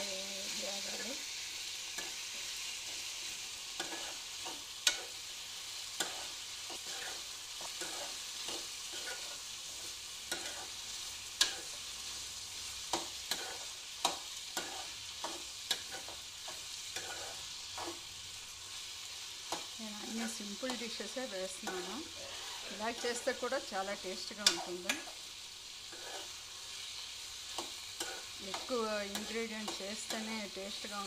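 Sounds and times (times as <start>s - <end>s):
vegetables sizzling in pan: 0.0s - 31.0s
spatula scraping pan: 1.9s - 18.1s, 18.8s - 25.2s, 25.8s - 31.0s.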